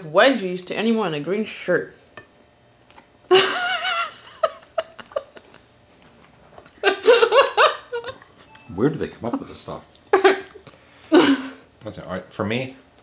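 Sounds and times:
woman giggling: 3.3 - 5.6, 6.8 - 8.5, 9.2 - 11.6.

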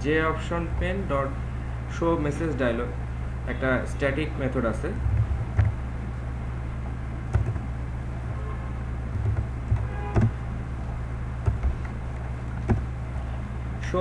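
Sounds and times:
electrical mains hum: 0.0 - 14.0
keyboard keystrokes: 7.3 - 7.7, 9.1 - 10.4, 11.4 - 12.0, 12.6 - 12.9.

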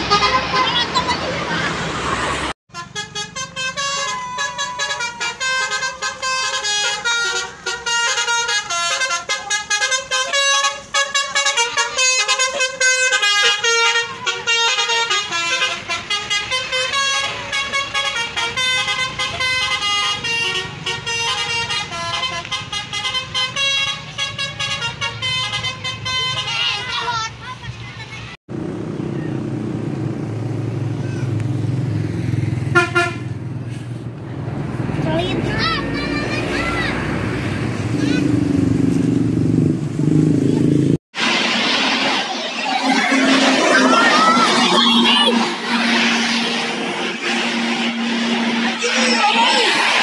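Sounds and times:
musical bus horn melody: 0.0 - 0.9, 2.7 - 26.9, 32.7 - 33.3, 42.8 - 50.0.

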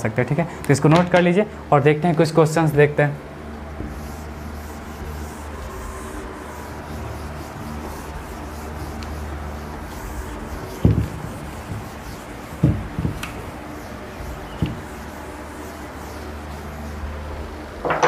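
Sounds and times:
steady low hum: 0.0 - 17.9
duster rubbing whiteboard: 3.7 - 17.5.

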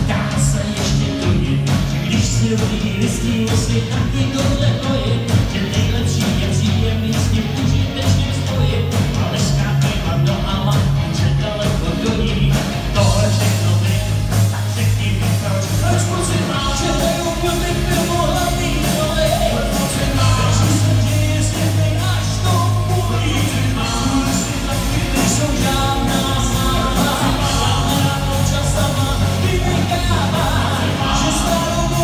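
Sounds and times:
live rock band playing: 0.0 - 32.0
man singing: 0.0 - 32.0.

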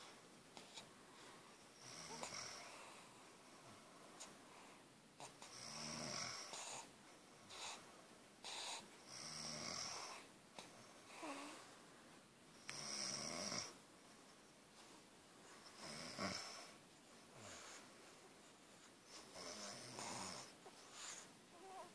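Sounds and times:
soft snoring: 0.0 - 3.7, 4.6 - 11.7, 12.6 - 13.8, 15.6 - 17.9, 18.8 - 21.9.

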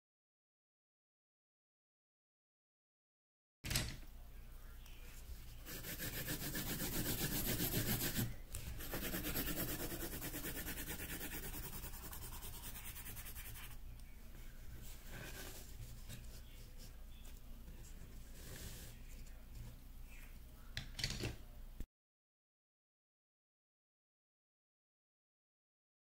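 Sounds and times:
colouring tool rubbing on paper: 5.5 - 13.8.

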